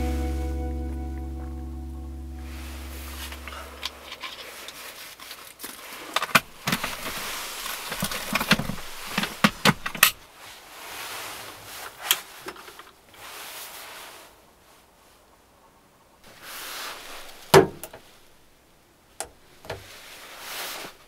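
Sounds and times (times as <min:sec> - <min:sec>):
clothing rustling: 0:02.6 - 0:14.4.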